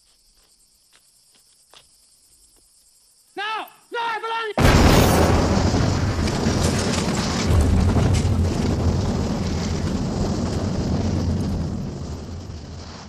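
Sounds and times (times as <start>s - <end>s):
explosion rumble: 4.6s - 13.0s
falling debris crackling: 4.6s - 13.0s.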